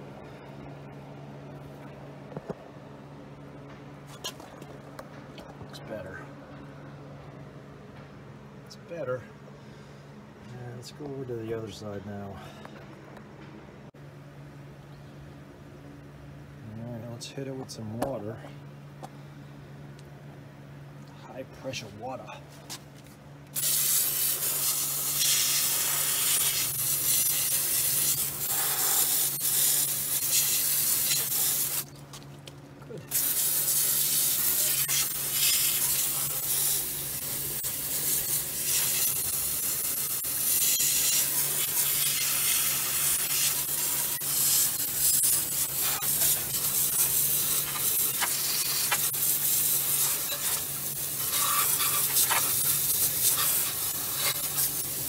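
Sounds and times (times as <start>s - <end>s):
hose nozzle spraying water jet: 23.6s - 31.9s, 33.1s - 55.0s.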